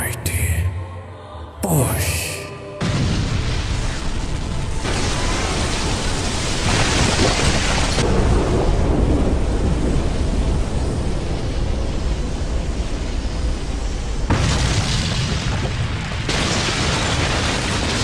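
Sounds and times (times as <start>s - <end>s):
rumbling explosion blast: 2.8s - 18.0s.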